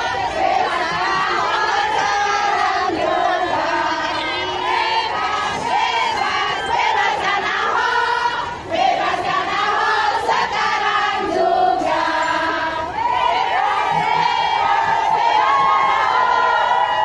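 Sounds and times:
crowd singing together: 0.0s - 17.0s.

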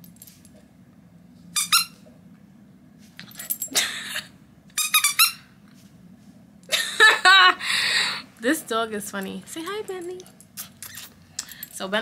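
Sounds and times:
squeaky toy squeaking: 1.6s - 2.0s, 4.8s - 5.5s.

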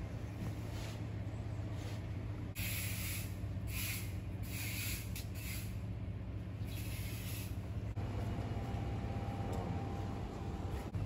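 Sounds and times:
high hiss bursts: 2.6s - 5.8s
low hum: 3.3s - 11.0s.

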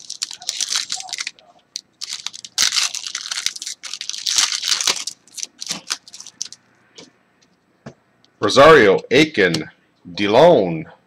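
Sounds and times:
foil wrapper crinkling and tearing: 0.0s - 6.6s.

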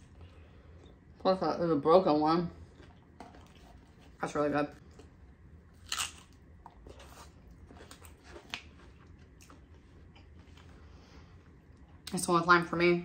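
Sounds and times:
person chewing crisp shell: 2.6s - 4.2s, 4.8s - 10.8s.

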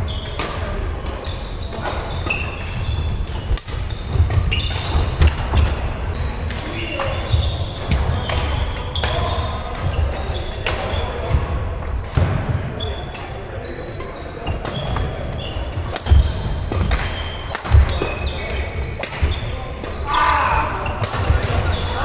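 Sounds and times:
shoes squeaking on court floor: 0.0s - 22.0s
rackets striking shuttlecock: 14.0s - 20.0s.

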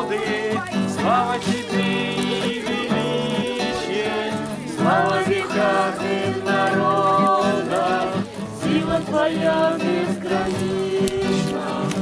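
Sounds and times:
acoustic guitar strumming: 0.0s - 12.0s
group of voices singing: 0.0s - 12.0s.

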